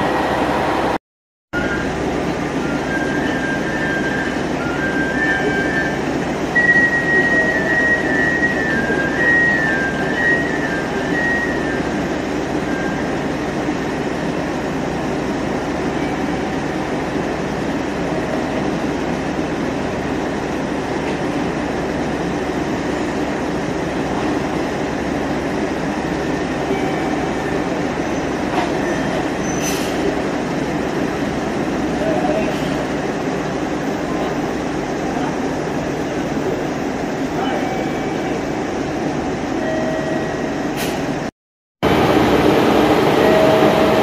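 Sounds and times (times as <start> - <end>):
diesel railcar rumble: 0.0 - 44.0
train wheel squeal: 2.6 - 13.2, 15.9 - 16.7, 26.2 - 30.1, 37.4 - 38.7.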